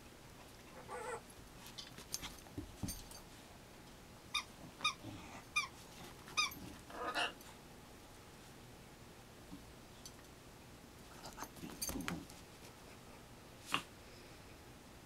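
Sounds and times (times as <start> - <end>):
small dog whining: 0.7 - 1.3, 6.4 - 7.4.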